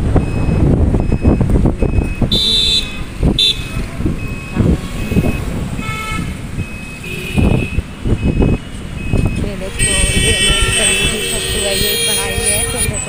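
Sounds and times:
scooter engine and road rumble: 0.0s - 13.0s
wind buffeting microphone: 0.0s - 13.0s
vehicle horn toots: 2.3s - 3.9s, 5.0s - 6.4s, 7.0s - 7.8s, 9.6s - 13.0s.

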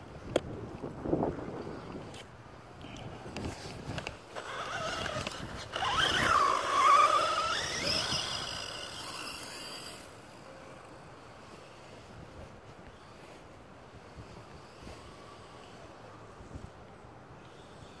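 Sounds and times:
electric motor whining: 4.4s - 10.2s.

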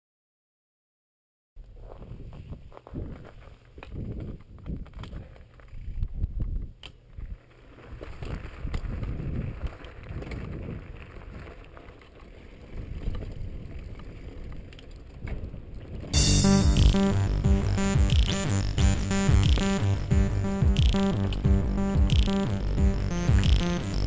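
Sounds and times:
bike tyres on gravel: 1.7s - 16.2s
wind buffeting microphone: 8.0s - 11.5s, 12.6s - 16.2s.

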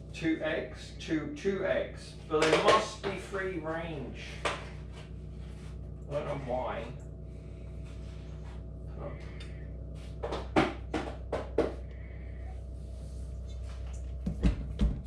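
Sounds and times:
steady low hum: 0.0s - 15.0s
kitchen knocks and clatters: 2.4s - 3.2s, 14.2s - 15.0s.

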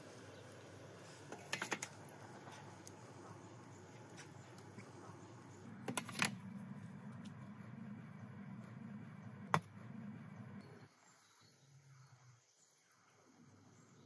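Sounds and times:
low steady rumble: 2.0s - 10.8s.

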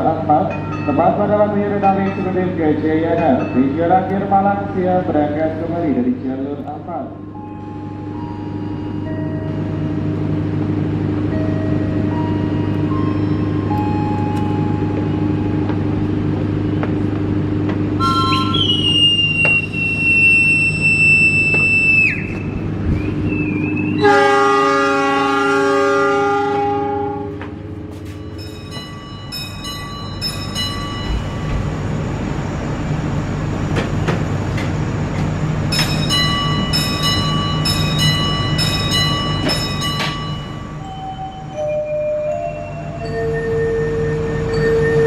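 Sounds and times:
train rumbling: 0.0s - 45.0s
railway whistle: 18.0s - 27.6s
locomotive horn blast: 23.9s - 27.6s
train wheels clicking: 33.7s - 40.6s.

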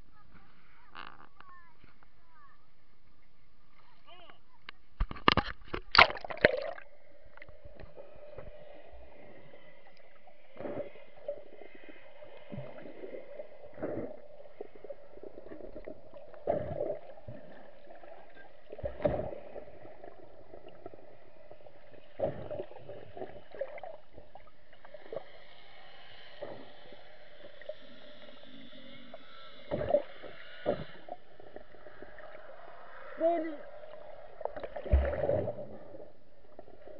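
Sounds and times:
underwater knocks and thuds: 18.8s - 19.5s.

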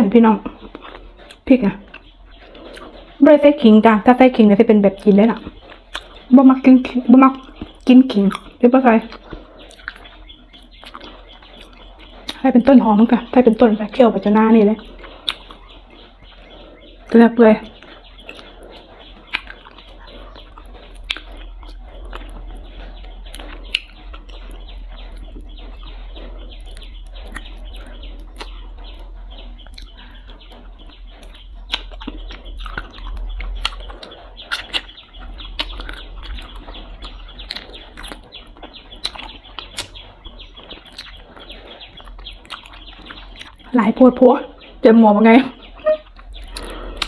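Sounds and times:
low steady hum: 0.0s - 47.0s
wet chewing and sucking: 0.4s - 4.1s, 4.9s - 43.8s, 44.5s - 47.0s
lip smacks: 5.4s - 6.3s, 7.4s - 12.4s, 14.8s - 43.7s, 45.6s - 47.0s.

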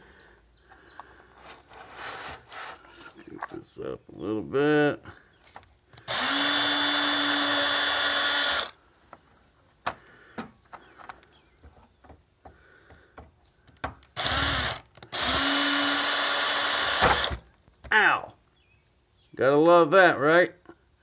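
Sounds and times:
power drill running: 6.0s - 8.8s, 14.2s - 17.4s.

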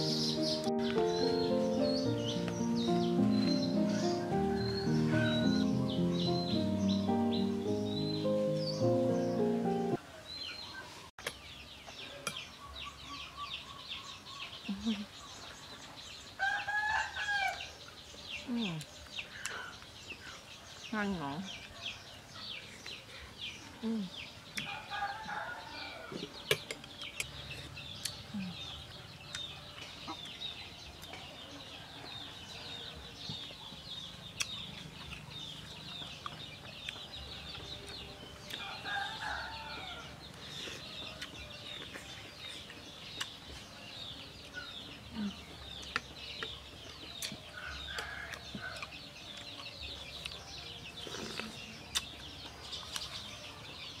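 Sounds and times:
chickens clucking: 0.0s - 10.0s
small birds chirping: 0.0s - 54.0s.

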